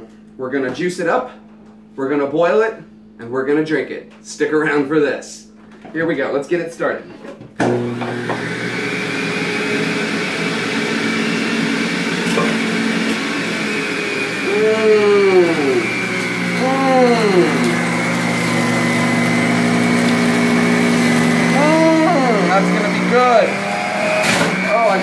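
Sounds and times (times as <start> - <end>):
juicer motor whining: 7.6 - 25.0
onions being shredded: 14.3 - 25.0.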